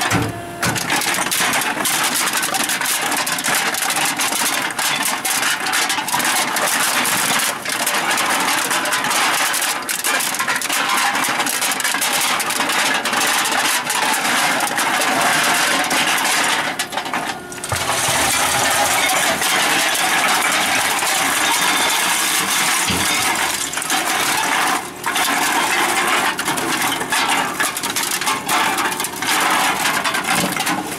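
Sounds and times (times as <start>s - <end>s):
cans being crushed: 0.8s - 30.8s
hydraulic motor humming: 17.5s - 21.4s.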